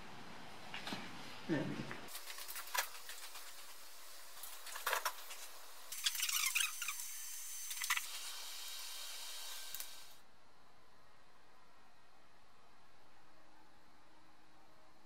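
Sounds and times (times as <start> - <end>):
steady hiss: 0.0 - 10.5.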